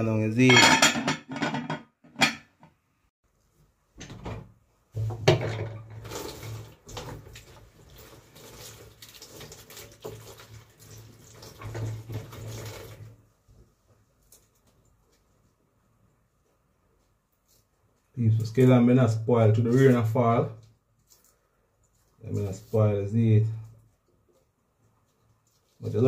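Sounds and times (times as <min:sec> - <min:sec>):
tap water running into sink: 0:05.0 - 0:13.1.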